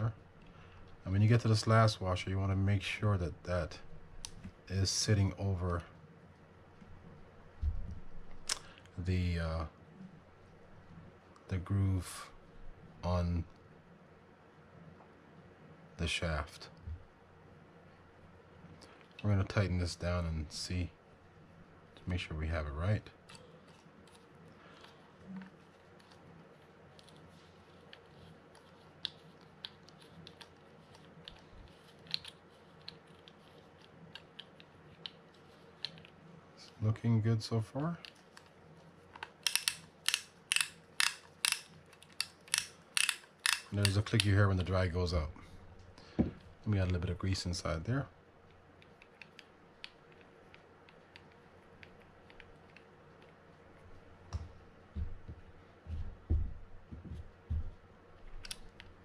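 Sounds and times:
fishing reel drag clicks: 39.4 - 44.0.

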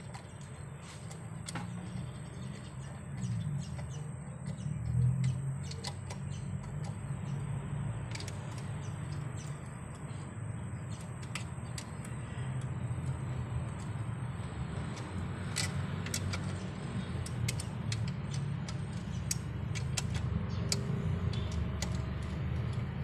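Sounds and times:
socket wrench clicking: 8.1 - 10.2, 10.8 - 22.9.

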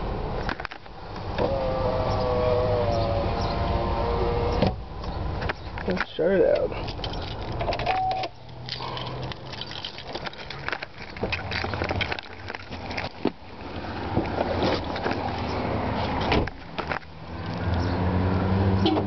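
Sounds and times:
car door shutting: 1.2 - 4.8, 16.2 - 16.6.

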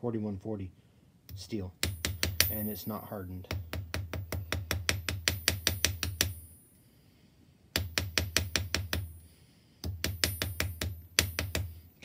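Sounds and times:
small hammer tapping metal: 1.3 - 6.6, 7.7 - 9.2, 9.8 - 11.8.

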